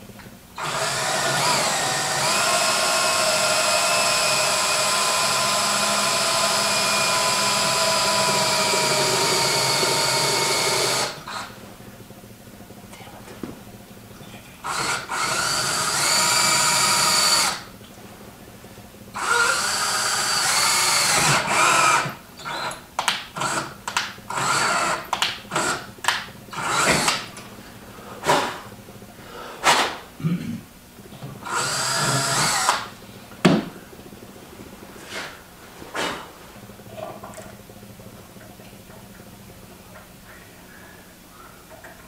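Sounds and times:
cordless drill boring into metal: 0.6 - 11.5, 14.6 - 17.6, 19.2 - 22.8, 23.4 - 23.7, 24.3 - 25.8, 26.5 - 27.2, 31.4 - 32.9.

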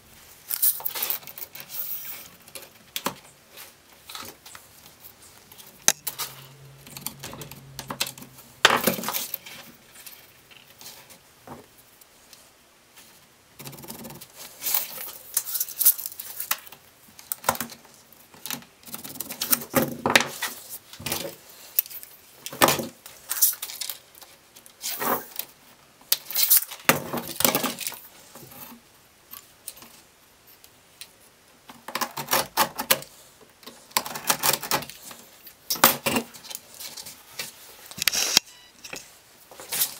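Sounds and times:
tape measure clicking and sliding: 37.9 - 39.0.

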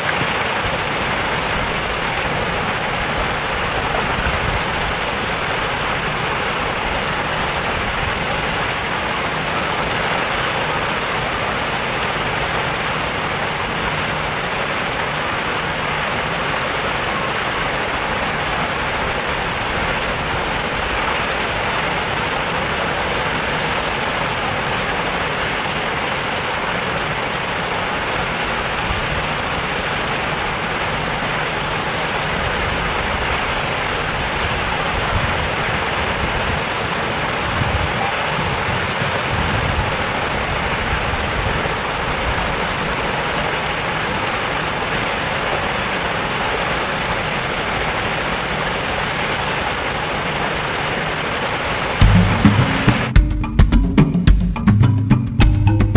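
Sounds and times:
steady rushing noise: 0.0 - 53.2
low rumbles: 52.0 - 54.7.

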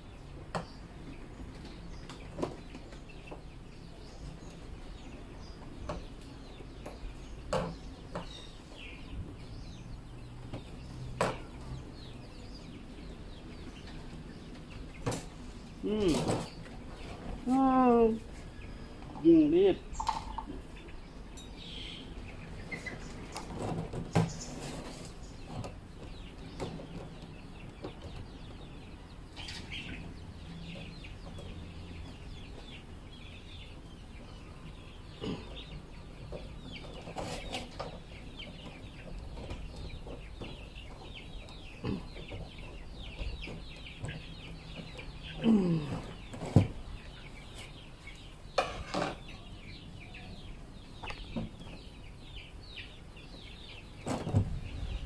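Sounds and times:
small birds chirping: 0.0 - 55.0
chickens clucking: 18.2 - 55.0.

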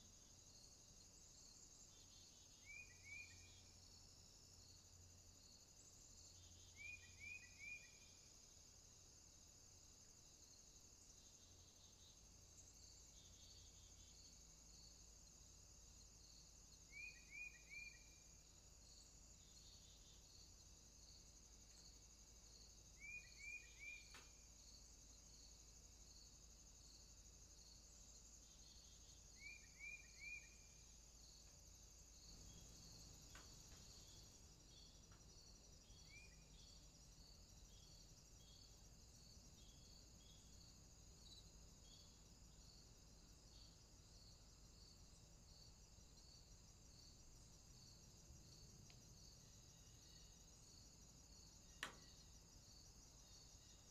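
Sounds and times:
faint insect chirring: 0.0 - 53.9
bird chirping: 2.0 - 3.7, 6.4 - 8.1, 16.9 - 18.2, 23.0 - 24.3, 28.5 - 30.8, 32.2 - 38.7.

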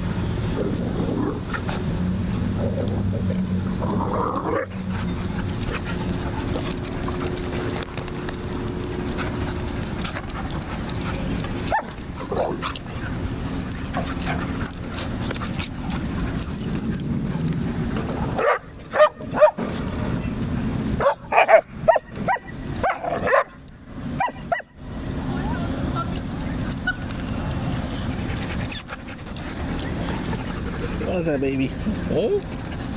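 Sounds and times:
steady low rumble: 0.0 - 24.1
dogs play-wrestling: 0.0 - 24.6, 26.2 - 32.9.

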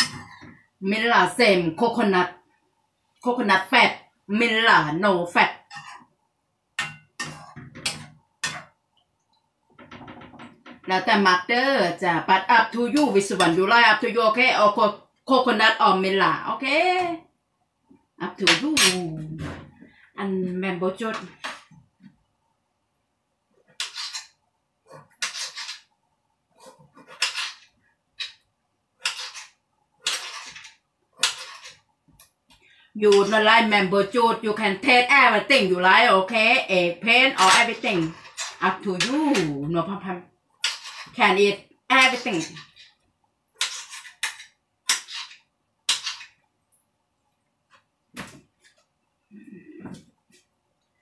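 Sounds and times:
knife scraping on cutting board: 23.7 - 25.9, 26.6 - 28.4, 29.0 - 31.8, 40.6 - 41.2, 43.6 - 46.4.

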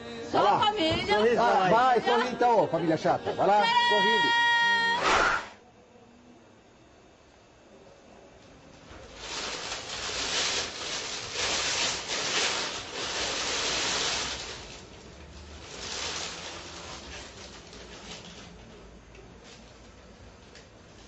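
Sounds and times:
plastic bag rustling: 8.8 - 21.0.

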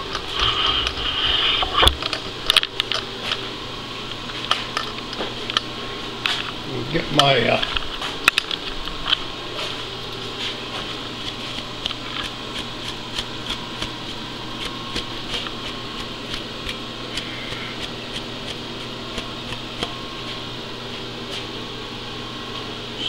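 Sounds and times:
milling machine hum: 0.0 - 23.0.

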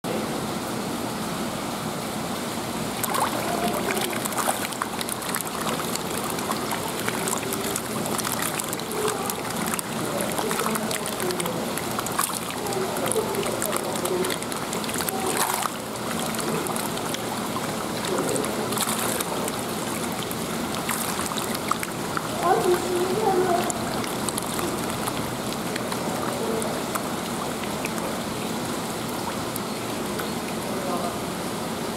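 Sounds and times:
fish splashing at water surface: 2.7 - 31.6.

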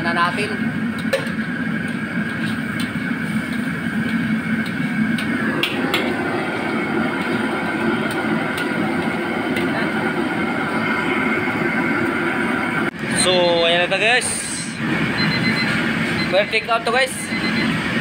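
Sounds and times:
gas stove rushing drone: 0.0 - 18.0.

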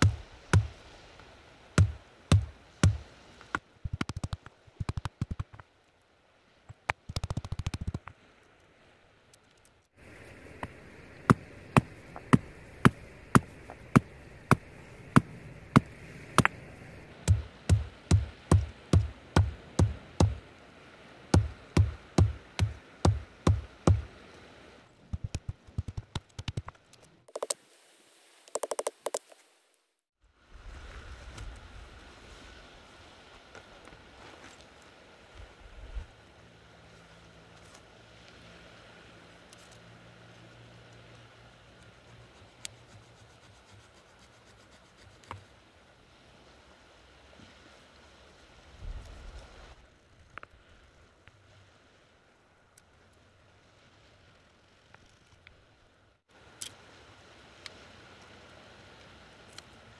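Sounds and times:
stone pounding a stick: 0.0 - 0.7, 1.8 - 3.0, 3.9 - 5.6, 17.2 - 20.4, 21.4 - 24.1
stone knocking on wooden stick: 1.8 - 3.0
sharp clicks: 3.9 - 5.6, 6.7 - 8.1, 25.2 - 27.6, 28.5 - 29.3.

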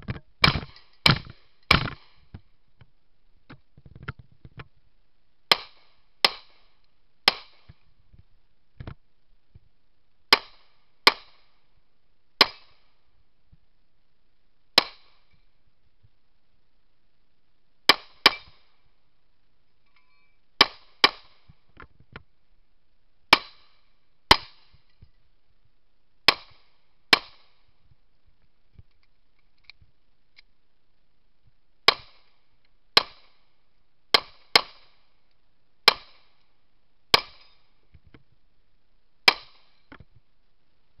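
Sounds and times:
pistol shots: 17.9 - 18.7.

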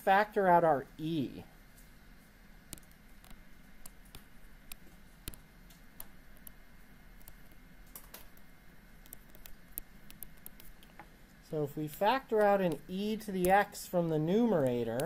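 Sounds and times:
faint steady hum: 0.0 - 15.0
stylus tapping on tablet screen: 2.7 - 11.0.

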